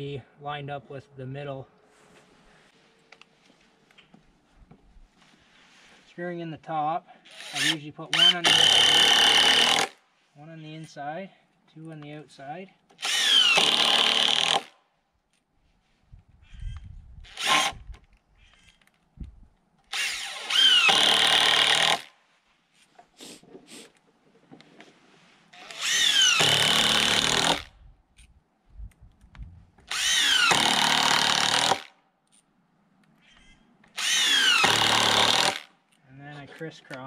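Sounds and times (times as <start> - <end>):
impact driver driving screws: 7.3 - 10.0, 17.3 - 18.7, 25.6 - 27.7, 29.9 - 31.9, 33.4 - 35.7.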